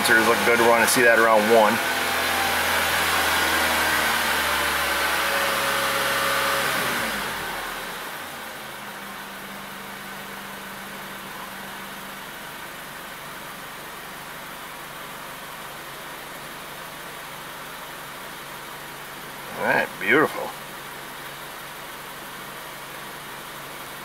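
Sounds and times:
car engine running: 0.0 - 24.0.

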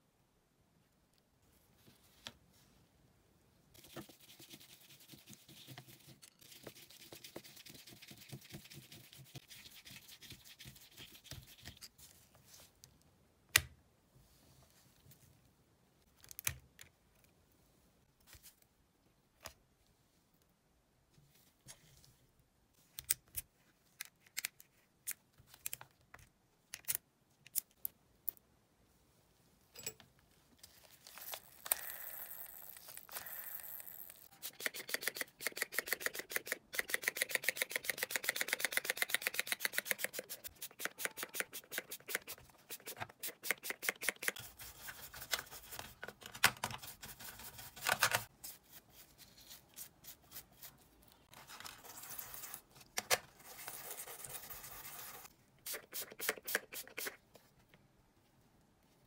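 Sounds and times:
spray bottle pumping: 55.0 - 57.2.

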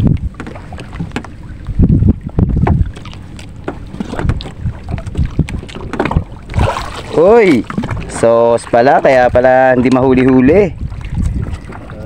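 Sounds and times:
water lapping at wooden boat: 0.0 - 12.0
wind buffeting microphone: 0.0 - 12.0.

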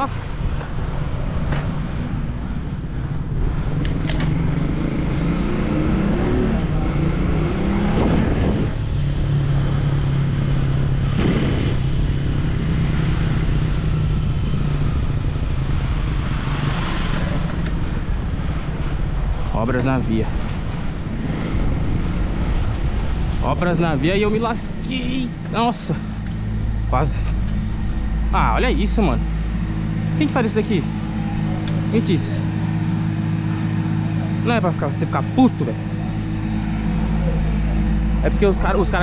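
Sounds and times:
motor vehicle engine: 0.0 - 39.0
wind noise on microphone: 6.6 - 19.5.

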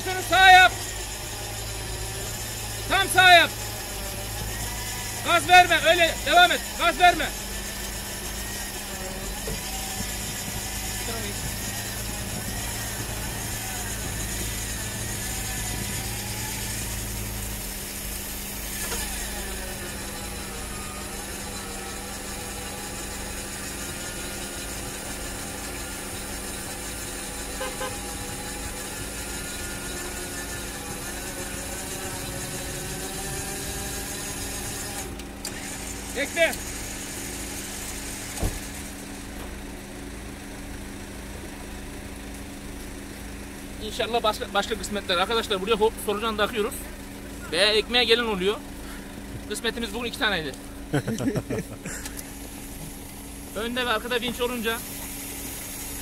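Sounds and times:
vehicle engine idling: 0.0 - 56.0
winch motor whining: 0.0 - 56.0
dull thump: 38.4 - 38.7.

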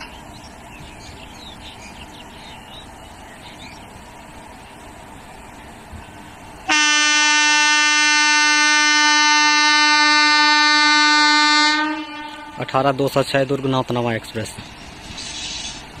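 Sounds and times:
birds chirping: 0.0 - 6.7
locomotive horn blast: 6.7 - 13.0.

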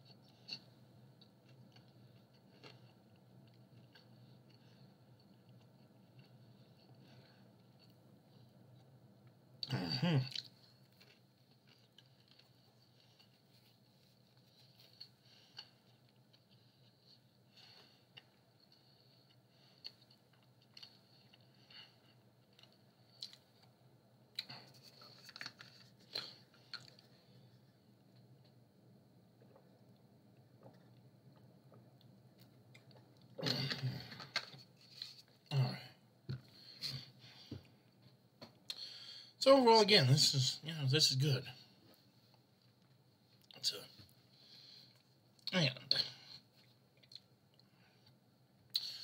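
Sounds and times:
faint chewing: 0.0 - 28.6, 29.4 - 35.5, 46.2 - 49.0.

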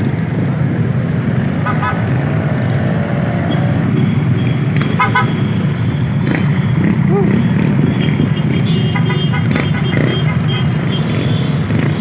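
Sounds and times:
engine rumble of street traffic: 0.0 - 12.0
horn toots: 8.0 - 11.7.

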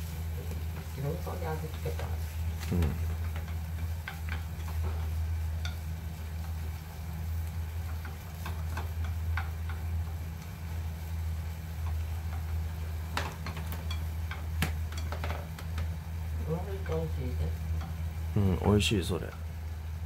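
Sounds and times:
steady low hum: 0.0 - 20.0
utensil tapping frying pan: 0.1 - 20.0.

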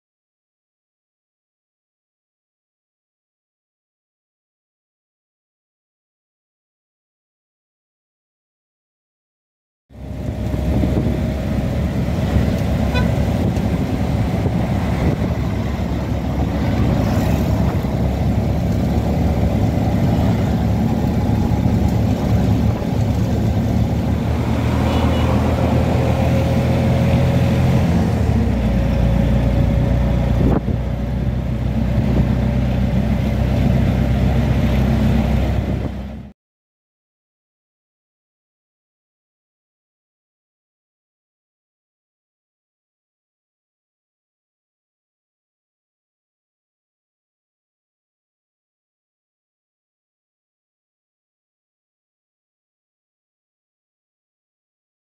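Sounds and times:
auto-rickshaw engine running: 9.9 - 36.3
road and wind noise: 9.9 - 36.4.

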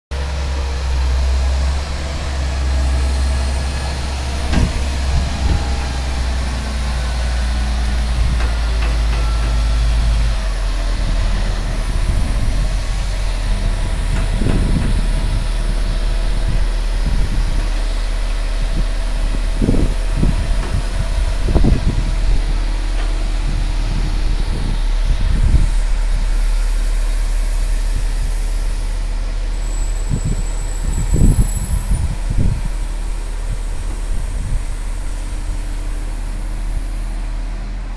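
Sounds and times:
heavy engine idling: 0.1 - 37.9
knocks and clunks: 4.2 - 17.7.

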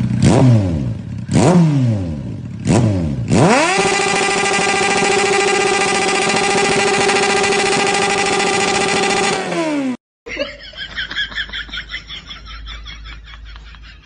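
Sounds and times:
engine running at high pitch: 2.7 - 10.0.

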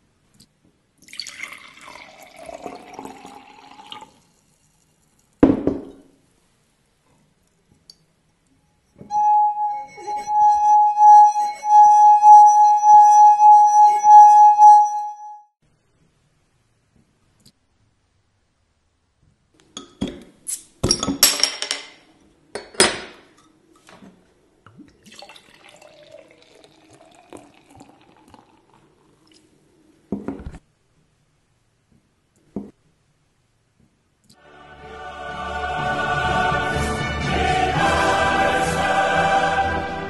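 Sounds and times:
water pouring into glass: 1.0 - 5.3, 24.7 - 29.5
knock: 5.4 - 6.0
singing glass rim ringing tone: 8.8 - 15.5.

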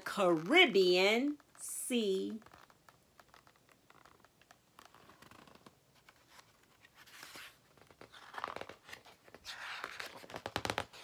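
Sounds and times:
page turning: 2.2 - 11.0
paper rustling: 2.3 - 11.0.

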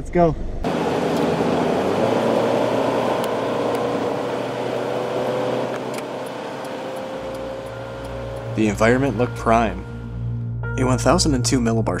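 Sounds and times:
car road noise at speed: 0.6 - 10.4
faint rising tone: 4.0 - 10.9.

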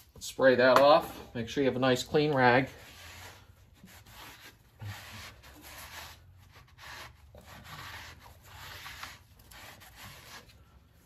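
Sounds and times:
cloth rag rubbing metal: 1.8 - 10.6.

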